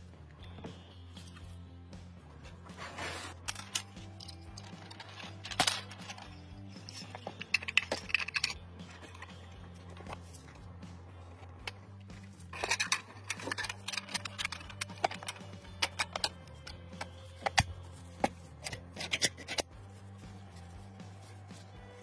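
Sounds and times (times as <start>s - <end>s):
plastic magazine parts clicking: 3.5s - 9.4s, 12.6s - 19.7s.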